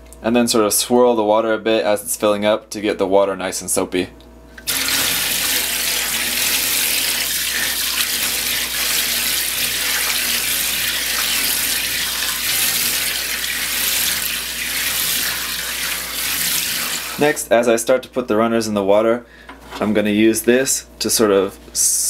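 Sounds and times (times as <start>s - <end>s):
faucet running into a steel sink: 4.6s - 17.3s.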